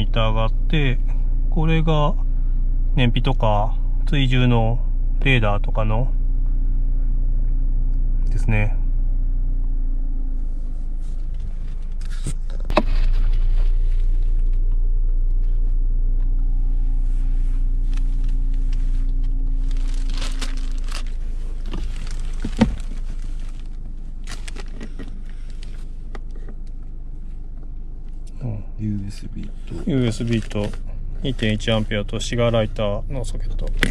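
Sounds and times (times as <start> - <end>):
car engine idling: 0.0 - 33.9
clicks and knocks from car interior: 11.2 - 15.6, 21.6 - 27.8, 33.6 - 33.9.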